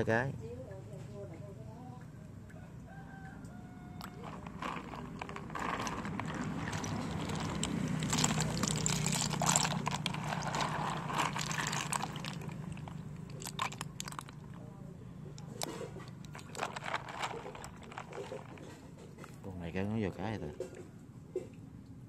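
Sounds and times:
wet snail shells clicking: 4.0 - 14.6, 15.4 - 19.4.

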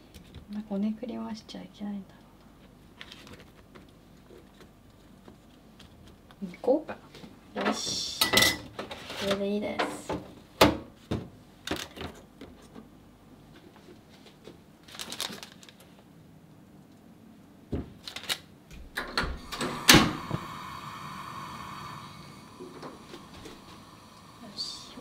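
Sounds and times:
paper rustling: 3.0 - 4.7, 13.8 - 16.0
steady hiss: 19.5 - 25.0.

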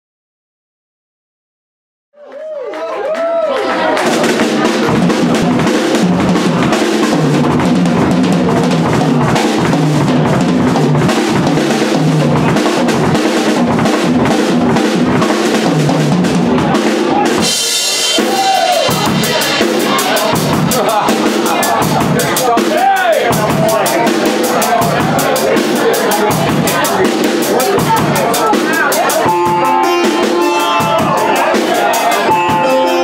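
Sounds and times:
rock drum kit playing: 3.7 - 33.0.

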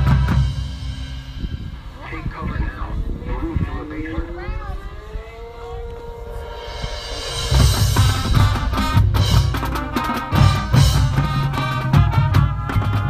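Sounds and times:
marching band music: 0.0 - 2.1, 5.9 - 13.0
bass drum hits: 6.8 - 12.6.

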